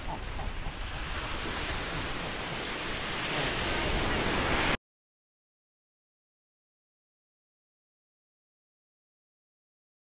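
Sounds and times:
surf washing up beach: 0.0 - 4.8.

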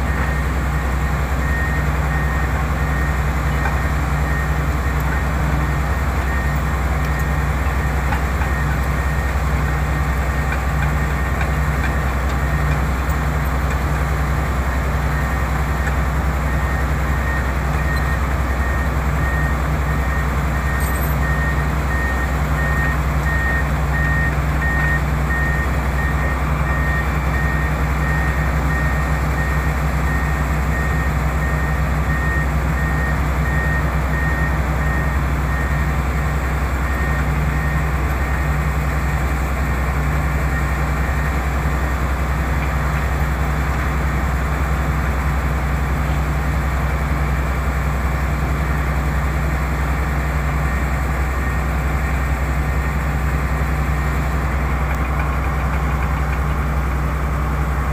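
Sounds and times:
excavator diesel engines droning: 0.0 - 57.9
high repeating beep alarm: 20.7 - 27.7.

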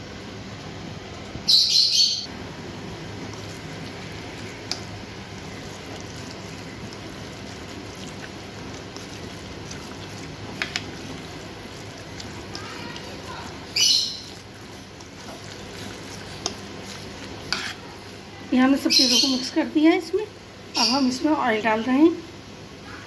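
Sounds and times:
high-pitched chirp: 1.5 - 2.3
spoon mixing minced meat: 3.0 - 19.8.

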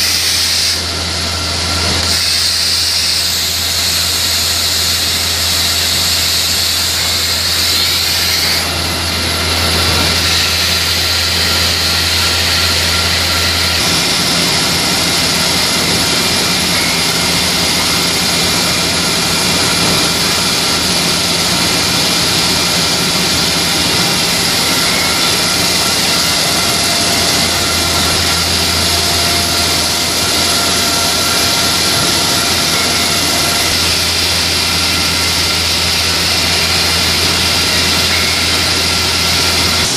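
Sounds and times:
constant whining tones: 0.0 - 39.9
factory machinery din: 0.0 - 39.9.

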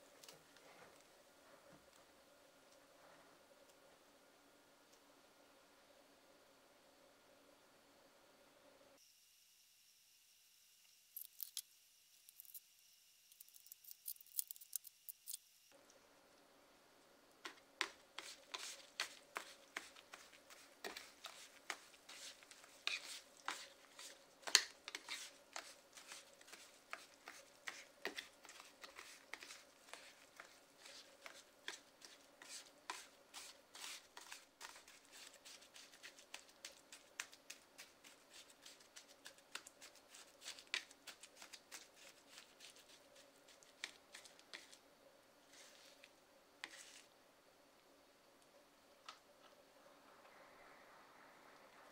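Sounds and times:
spatulas tapping and scraping: 17.4 - 44.8, 45.5 - 47.1.

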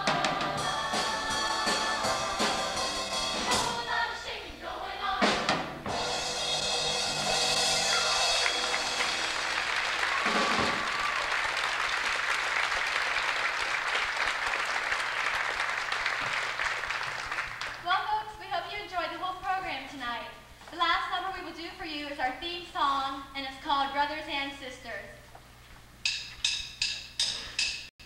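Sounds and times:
music final hit: 5.3 - 11.1
audience applauding: 7.8 - 17.8.

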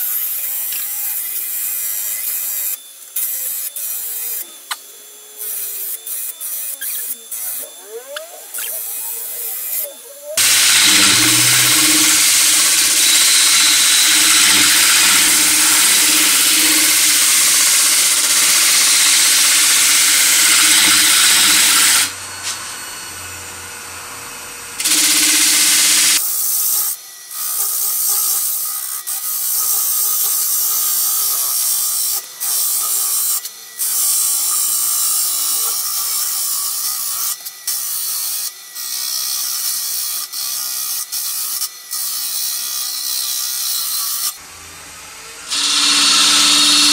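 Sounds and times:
lathe cutter scraping wood: 0.0 - 22.7, 24.8 - 26.3, 45.4 - 46.9.

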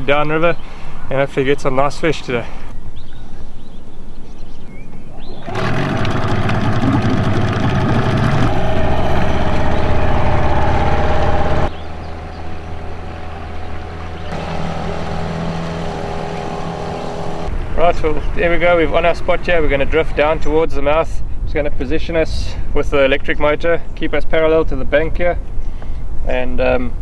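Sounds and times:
outboard motor running: 5.3 - 17.5.

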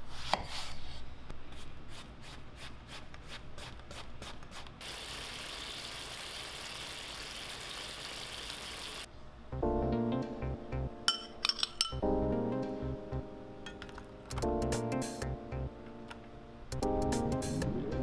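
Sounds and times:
steady sizzle: 4.8 - 9.1.

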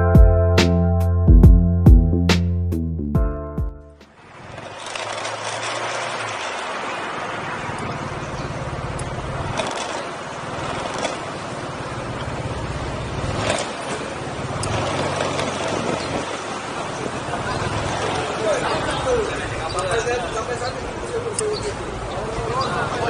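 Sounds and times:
wind and road noise: 4.0 - 23.0
motorcycle engine at low revs: 4.2 - 20.0.

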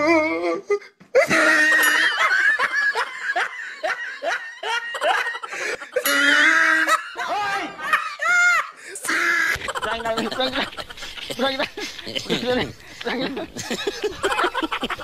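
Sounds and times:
person laughing: 9.5 - 15.0.

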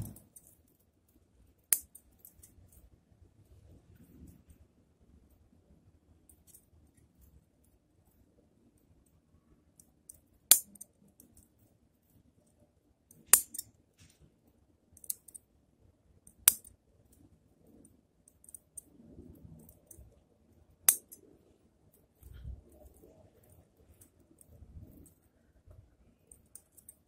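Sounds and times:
faint ticks and handling: 16.3 - 27.0.

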